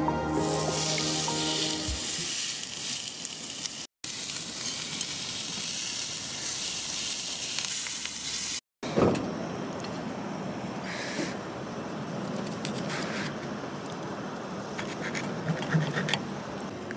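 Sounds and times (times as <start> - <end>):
steak sizzling on grill pan: 0.3 - 8.6.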